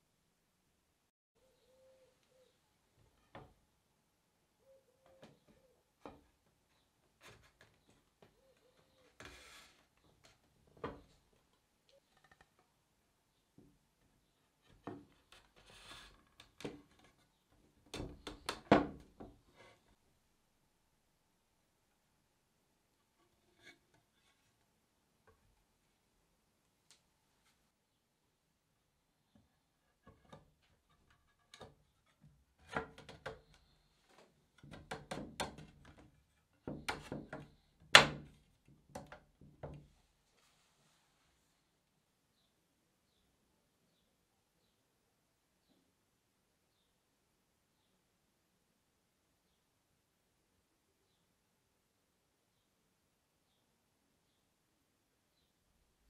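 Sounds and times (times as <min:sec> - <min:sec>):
wood rubbing slide: 0:09.1 - 0:09.9
wood-on-wood knocks: 0:17.9 - 0:19.4, 0:34.6 - 0:39.9.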